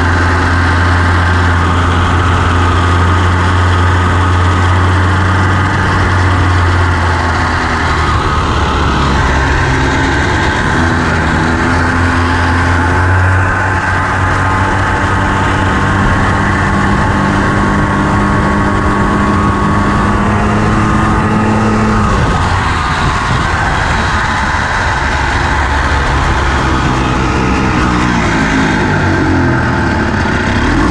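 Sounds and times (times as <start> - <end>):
buggy engine running: 0.0 - 30.9.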